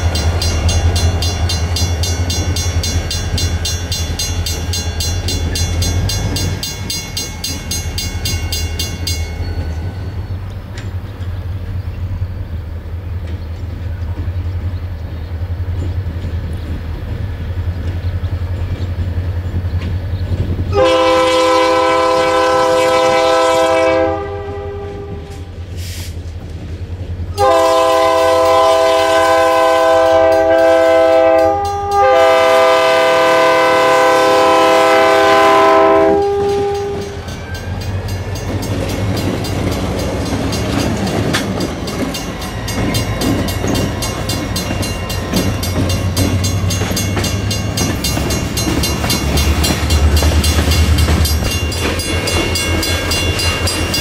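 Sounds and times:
locomotive engine rumbling: 0.0 - 54.0
train wheels on rails: 0.0 - 54.0
train air horn blasts: 20.7 - 26.2, 27.3 - 37.4.

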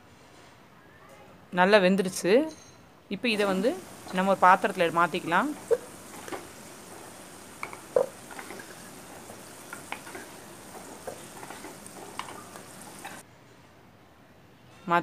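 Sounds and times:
garlic sizzling in oil: 3.2 - 13.2
wooden spoon knocking and scraping: 3.4 - 13.2.

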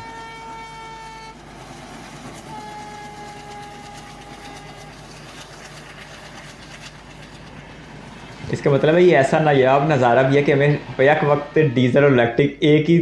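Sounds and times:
locomotive horn blasts: 0.0 - 1.4, 2.4 - 5.2
diesel locomotive engine chugging: 0.0 - 13.0.

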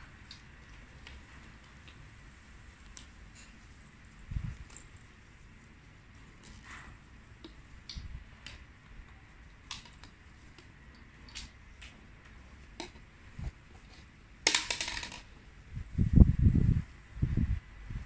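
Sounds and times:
plastic clattering rattle: 14.5 - 15.3.

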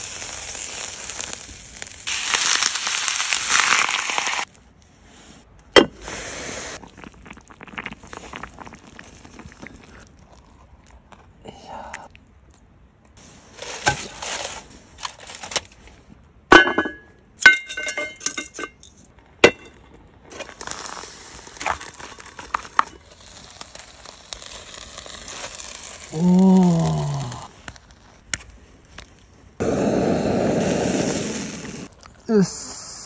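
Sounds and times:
steady steam hiss: 0.0 - 4.4, 6.0 - 6.8, 29.6 - 33.0
aluminium foil crinkling: 0.0 - 4.5, 13.6 - 15.8, 20.3 - 28.3
blowtorch rushing: 29.6 - 31.9.

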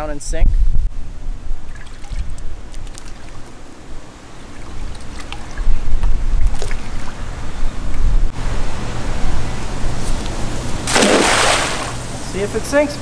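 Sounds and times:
wind buffeting microphone: 0.0 - 12.2
bait splashing into water: 10.9 - 12.0.

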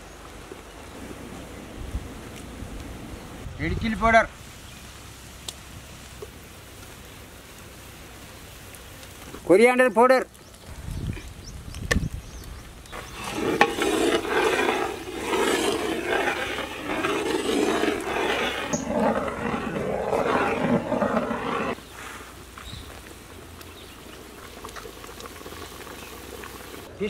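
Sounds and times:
liquid sizzling in hot oil: 12.9 - 19.2, 23.7 - 26.9
curry bubbling: 12.9 - 21.8, 23.0 - 26.9.

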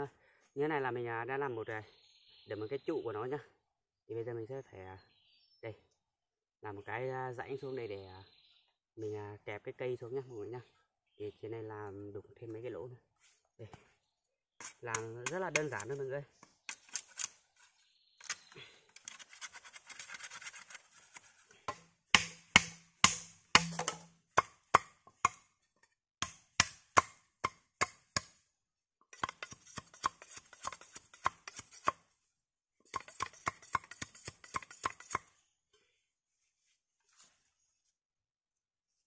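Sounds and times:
blade scraping bamboo: 14.6 - 24.1, 29.1 - 32.0, 32.9 - 35.3
blade knocking into bamboo: 15.0 - 16.0, 21.7 - 25.4.

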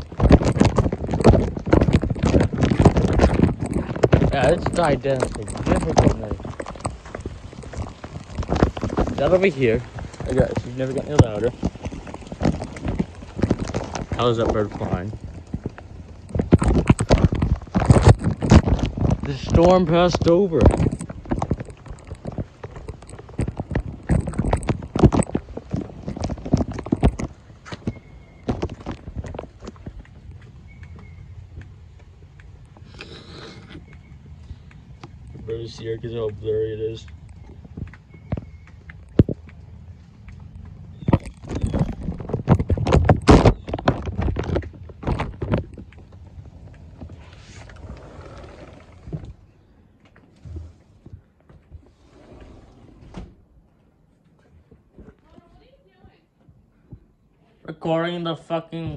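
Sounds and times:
footsteps on wet pavement: 0.0 - 51.8.

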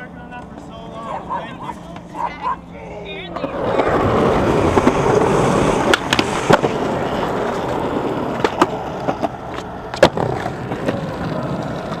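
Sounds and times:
skateboard wheels rolling on concrete: 0.0 - 12.0
skateboard clacks: 3.3 - 12.0.

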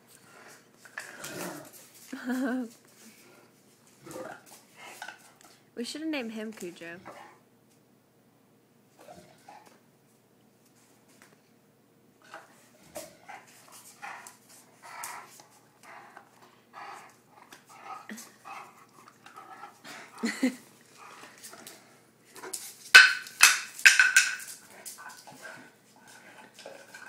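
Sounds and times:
dog panting: 12.3 - 22.0.

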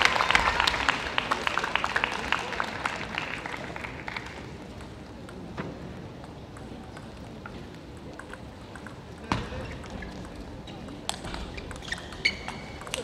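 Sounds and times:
audience applause: 0.0 - 4.6.

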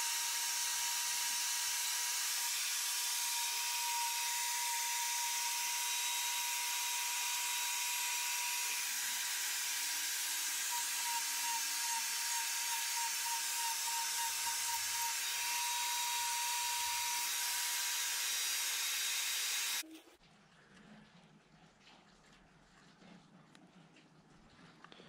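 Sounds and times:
die grinder grinding wood: 0.0 - 19.8.

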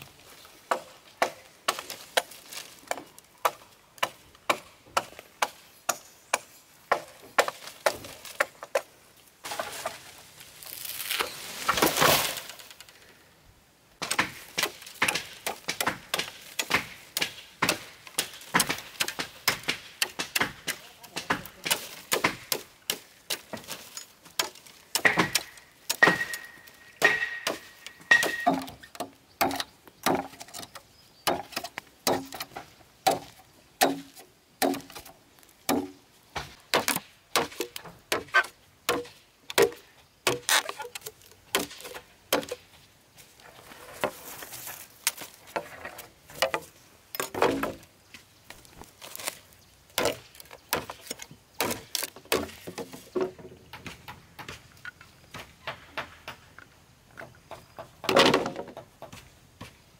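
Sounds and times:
machete chopping bamboo: 0.7 - 8.9, 14.0 - 42.6, 46.3 - 47.8, 49.0 - 54.7.

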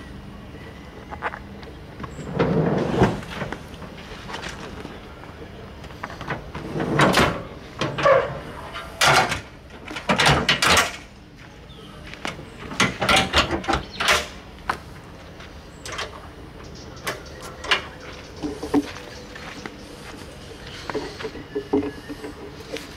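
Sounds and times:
metal tailgate clanking: 6.6 - 11.1, 12.6 - 14.4.

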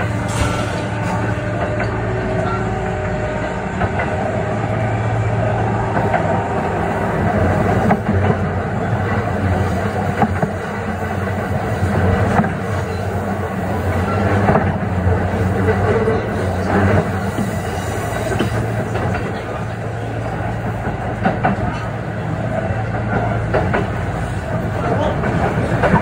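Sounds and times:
wheels clicking over rail joints: 7.5 - 26.0.

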